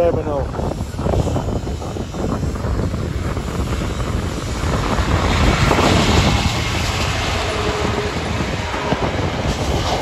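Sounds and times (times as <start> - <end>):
diesel locomotive engine running: 0.2 - 10.0.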